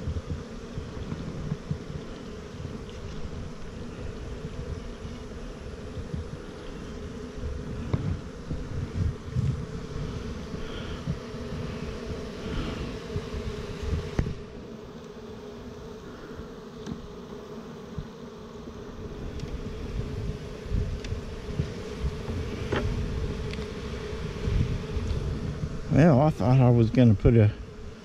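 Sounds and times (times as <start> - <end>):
knocks of wooden hive frames: 0.0 - 3.8, 7.4 - 14.5, 16.7 - 18.3, 19.2 - 25.8
honeybees buzzing: 0.0 - 28.0.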